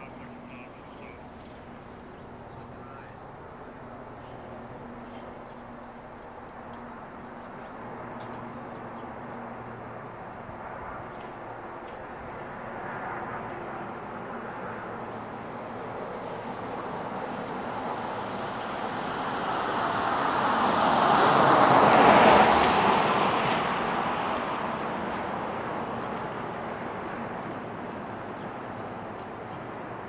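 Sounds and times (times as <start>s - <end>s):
vehicle passing by: 0.0s - 30.0s.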